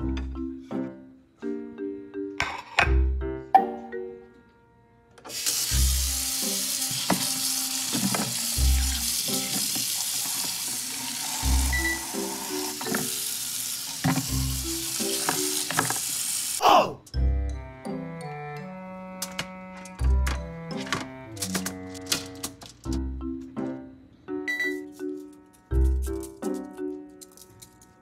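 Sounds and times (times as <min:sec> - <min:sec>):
tap water running into sink: 0:05.3 - 0:16.6.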